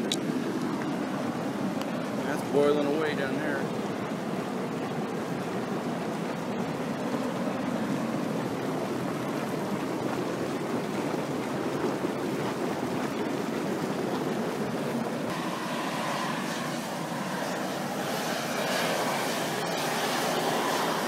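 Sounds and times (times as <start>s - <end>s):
water boiling: 0.0s - 21.0s
steam vent rushing: 15.3s - 21.0s.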